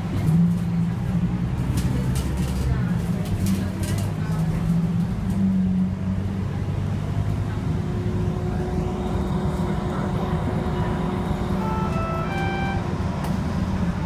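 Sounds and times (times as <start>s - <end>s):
bus engine and road rumble: 0.0s - 14.0s
short high tones: 11.6s - 12.9s.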